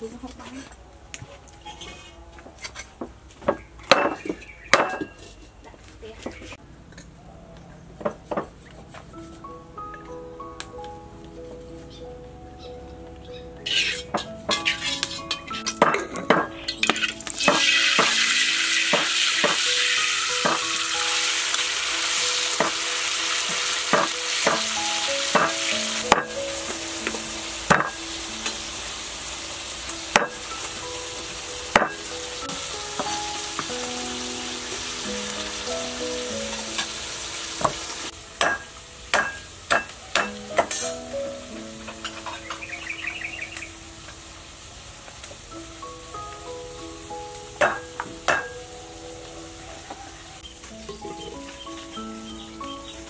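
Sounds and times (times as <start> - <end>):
soft background music: 0.0 - 6.6, 7.4 - 53.0
metal ladle scraping wok: 13.6 - 21.5, 41.9 - 42.7
food sizzling in hot oil: 13.6 - 53.0.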